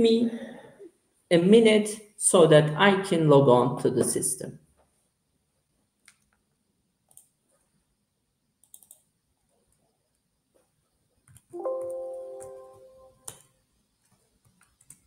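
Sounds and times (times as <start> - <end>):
mouse clicks: 7.1 - 7.3, 8.6 - 9.1
keyboard keystrokes: 8.6 - 9.0.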